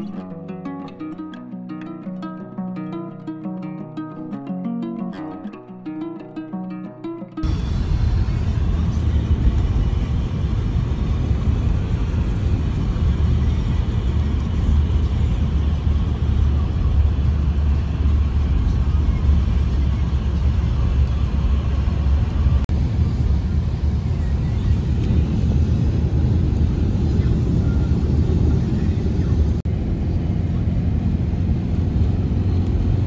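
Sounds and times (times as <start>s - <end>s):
car road noise rumble: 7.4s - 33.0s.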